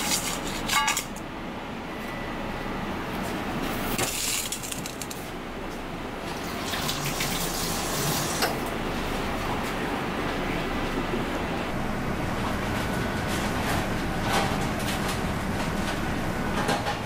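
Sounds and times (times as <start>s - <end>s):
kitchen rushing background noise: 0.0s - 2.2s, 3.1s - 17.0s.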